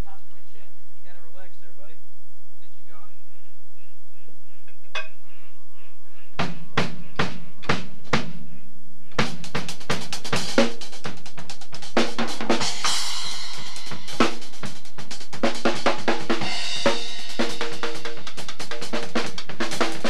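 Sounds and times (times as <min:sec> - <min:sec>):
drum strokes: 0:06.3 - 0:20.0
fast drum run: 0:06.4 - 0:08.4, 0:09.1 - 0:20.0.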